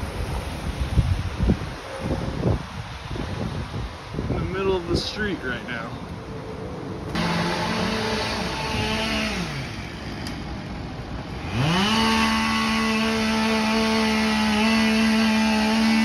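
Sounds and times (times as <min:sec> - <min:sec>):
chainsaw running: 0:07.1 - 0:16.0.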